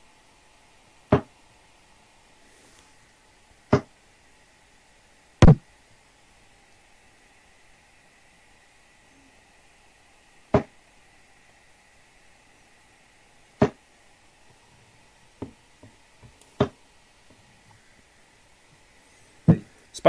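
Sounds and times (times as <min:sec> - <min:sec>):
darts thudding into dartboard: 0:01.1 - 0:01.3, 0:03.7 - 0:03.9, 0:05.4 - 0:05.6, 0:10.5 - 0:10.7, 0:13.6 - 0:13.8, 0:16.6 - 0:16.8.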